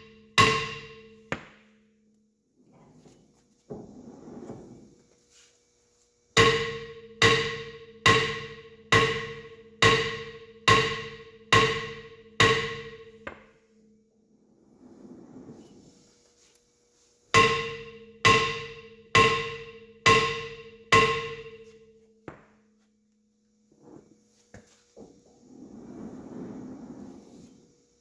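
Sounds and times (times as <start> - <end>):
hammer ringing on metal: 0.0 - 1.5, 6.4 - 13.6, 17.4 - 22.5.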